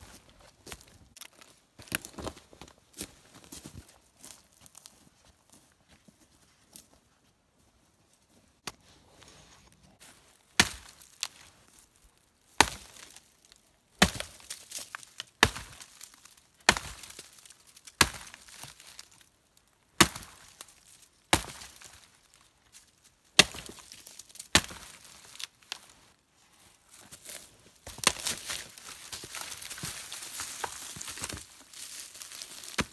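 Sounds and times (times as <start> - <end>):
hatchet chopping log: 10.6 - 11.2, 12.6 - 13.0, 14.0 - 14.6, 15.4 - 15.9, 16.6 - 17.2, 18.0 - 18.8, 20.0 - 20.5, 21.3 - 22.0, 23.4 - 25.0.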